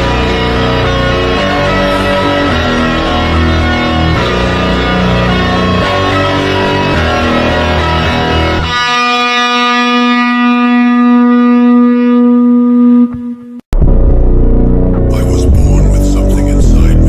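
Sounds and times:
phonk music: 0.0s - 9.4s, 13.2s - 17.0s.

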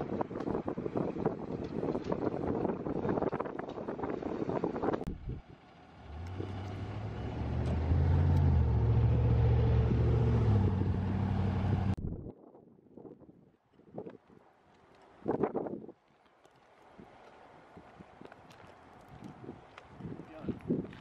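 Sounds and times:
wind rumble on microphone: 0.0s - 5.7s, 9.9s - 14.4s, 15.2s - 16.0s, 16.9s - 21.0s
diesel engine running: 5.1s - 12.0s.

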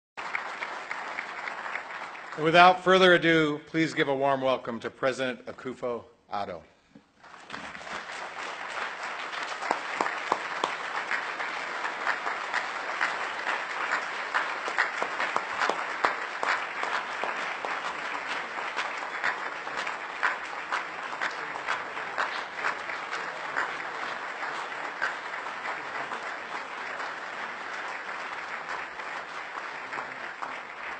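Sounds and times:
audience applauding: 0.2s - 3.2s, 7.2s - 30.9s.

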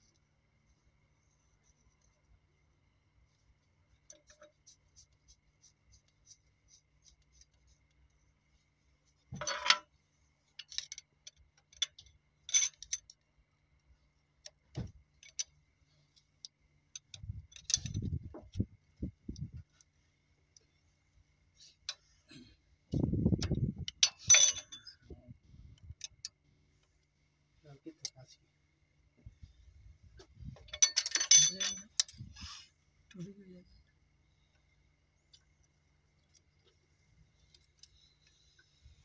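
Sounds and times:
hand tools clinking on metal: 10.6s - 13.2s, 23.9s - 25.2s, 30.6s - 32.2s.

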